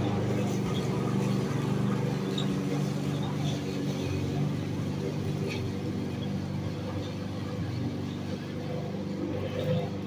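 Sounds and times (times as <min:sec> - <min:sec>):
lawn mower engine running: 0:00.0 - 0:10.0.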